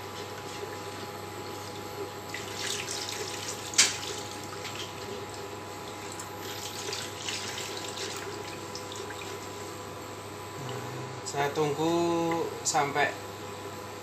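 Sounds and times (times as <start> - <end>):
liquid swishing and sloshing: 0.2 - 10.5.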